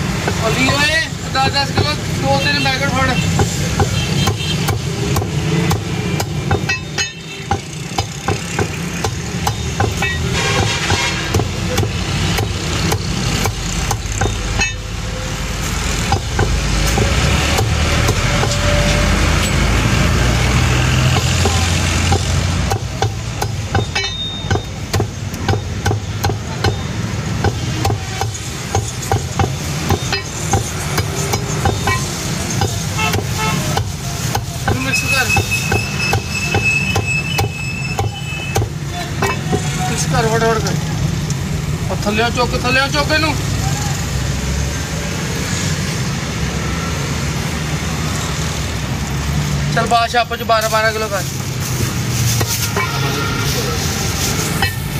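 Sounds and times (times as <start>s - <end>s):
cleaver chopping on wooden block: 3.4s - 6.8s, 7.5s - 14.4s, 21.1s - 34.8s.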